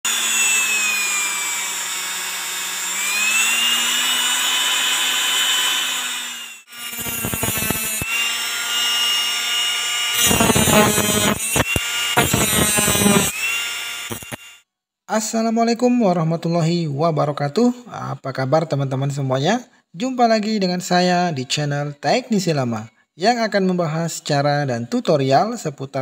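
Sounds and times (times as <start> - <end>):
electric motor whine: 0.1 - 14.6
metal grinding: 0.1 - 14.6.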